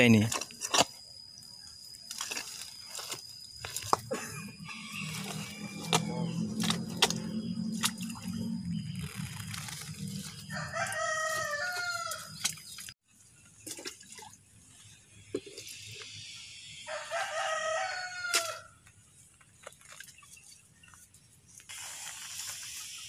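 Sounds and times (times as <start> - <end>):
rooster crowing: 4.6 - 6.6, 10.3 - 12.4, 16.8 - 18.8.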